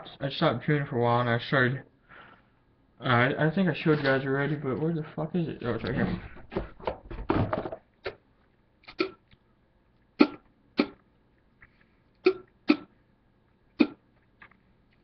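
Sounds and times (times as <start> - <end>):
man making throat sounds: 8.8 - 9.2, 10.2 - 11.0, 12.2 - 13.0, 13.7 - 14.1.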